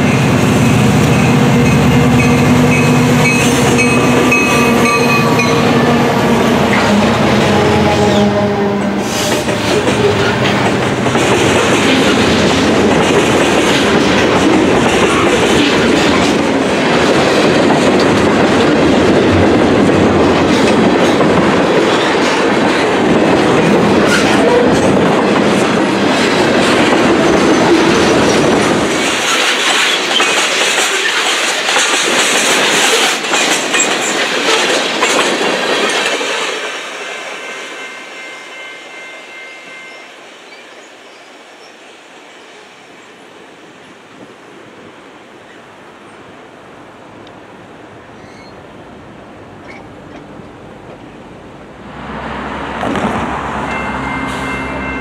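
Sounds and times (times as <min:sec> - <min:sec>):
train wheels clicking over rail joints: 0:09.0 - 0:36.8.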